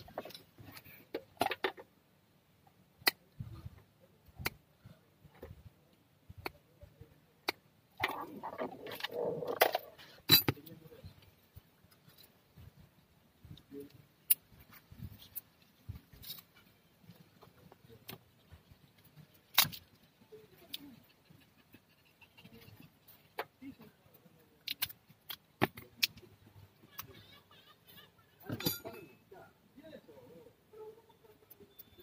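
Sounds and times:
plastic wire connectors clicking: 0:24.6 - 0:26.2.

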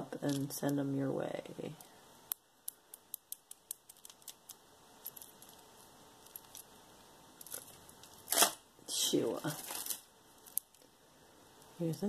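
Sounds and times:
beads clicking and clinking: 0:02.3 - 0:06.7.

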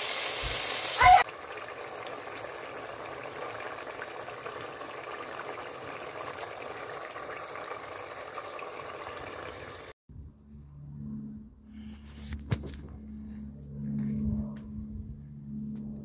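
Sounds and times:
curry bubbling in pot: 0:01.2 - 0:10.0.

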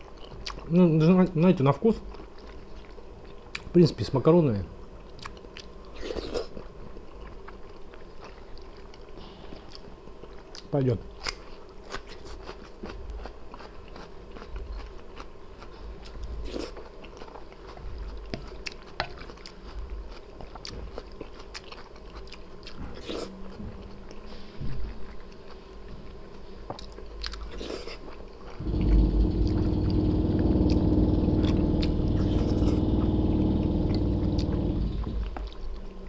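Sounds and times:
chewing and biting food: 0:00.0 - 0:00.8, 0:02.0 - 0:03.7, 0:05.0 - 0:32.8
loud hum with low drone: 0:28.6 - 0:35.6.

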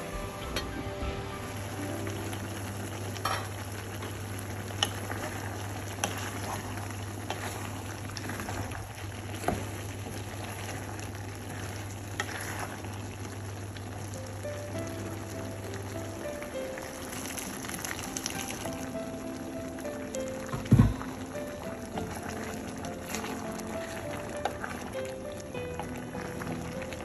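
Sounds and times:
curry sizzling in a pot: 0:00.0 - 0:27.0
wooden spoon stirring: 0:01.5 - 0:13.8, 0:20.4 - 0:27.0.

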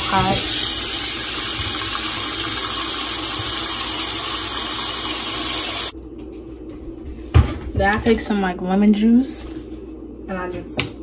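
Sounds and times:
tap water running into a bowl: 0:00.0 - 0:05.9.

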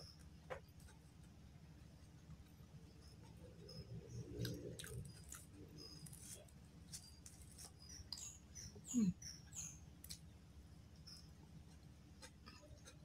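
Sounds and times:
bird chirps: 0:07.8 - 0:09.8.

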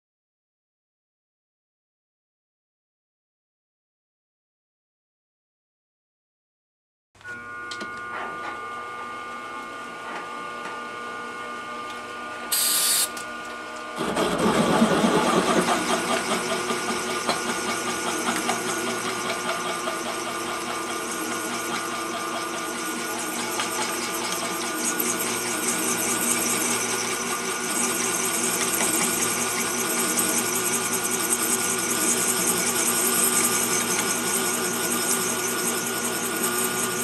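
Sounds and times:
drill cutting steel: 0:12.5 - 0:13.2, 0:15.3 - 0:37.0
short loud hiss: 0:12.5 - 0:13.2
milling spindle whine: 0:15.2 - 0:37.0.

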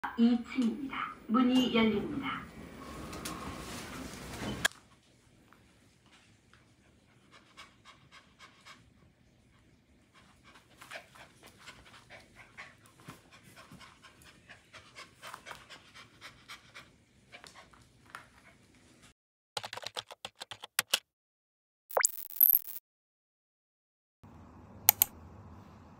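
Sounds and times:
small dog panting: 0:06.0 - 0:18.8.

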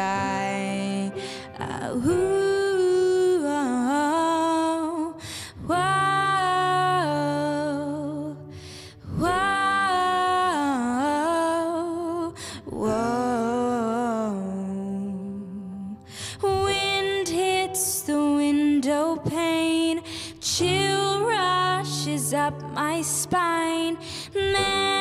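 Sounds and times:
piano chords: 0:00.0 - 0:25.0
woman breathing: 0:01.2 - 0:01.6, 0:05.2 - 0:05.6, 0:08.4 - 0:09.1, 0:12.4 - 0:12.7, 0:16.0 - 0:16.5, 0:20.0 - 0:20.4, 0:24.0 - 0:24.4
woman singing wordless refrain: 0:09.2 - 0:25.0.

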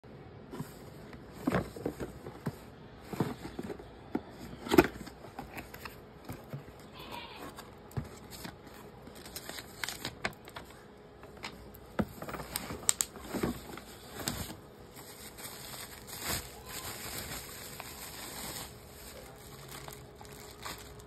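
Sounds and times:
paper insert rustling: 0:04.5 - 0:10.8, 0:12.2 - 0:21.0.

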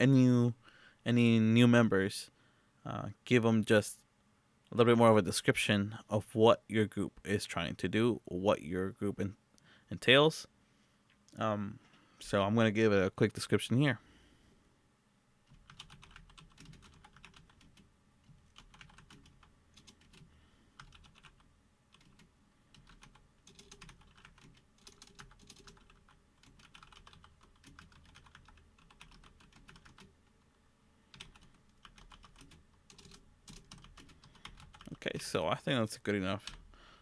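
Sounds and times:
faint keyboard typing: 0:15.4 - 0:30.5, 0:31.1 - 0:35.2, 0:36.3 - 0:36.7.

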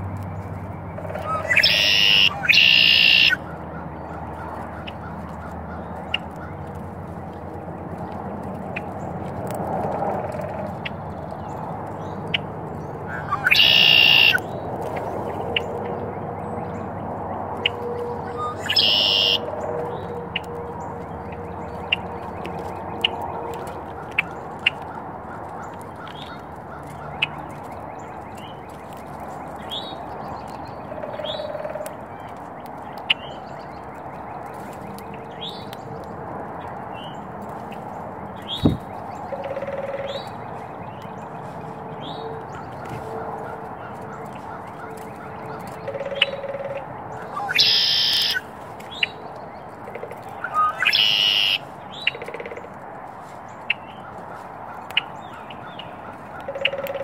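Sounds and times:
bird chirps: 0:00.4 - 0:05.0, 0:13.1 - 0:14.4, 0:17.6 - 0:20.2, 0:38.4 - 0:43.0, 0:44.2 - 0:52.5
loud bird calls: 0:00.9 - 0:06.7, 0:12.3 - 0:15.8, 0:17.6 - 0:20.5, 0:37.0 - 0:57.0.

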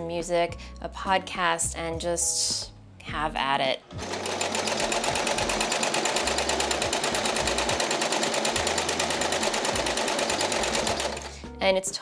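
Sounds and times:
sewing machine running: 0:03.9 - 0:11.4.

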